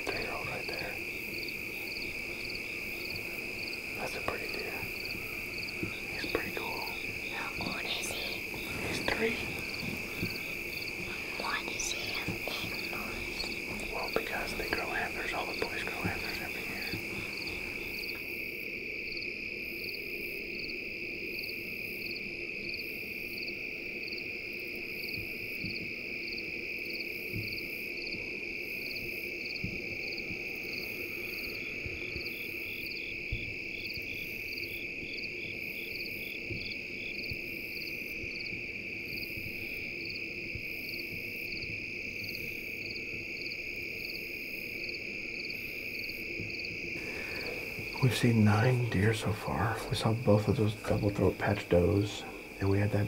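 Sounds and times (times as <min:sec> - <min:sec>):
insect chirps: 0:00.0 - 0:53.0
insects trilling: 0:00.0 - 0:53.0.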